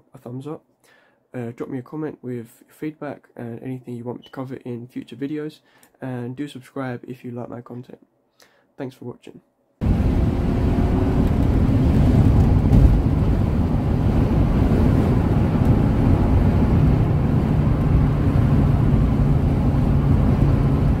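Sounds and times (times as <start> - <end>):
car road and engine rumble: 9.8 - 21.0
wind noise: 9.8 - 21.0.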